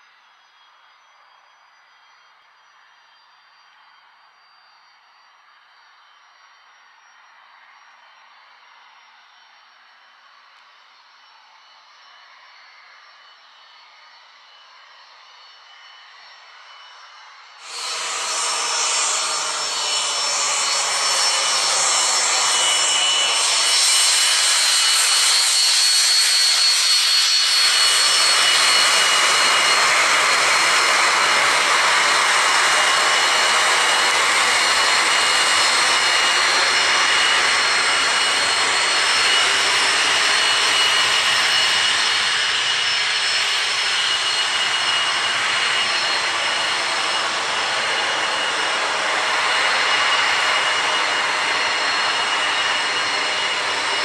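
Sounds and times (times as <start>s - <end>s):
turbojet engine running: 15.4s - 54.0s
high whistling tones: 15.6s - 54.0s.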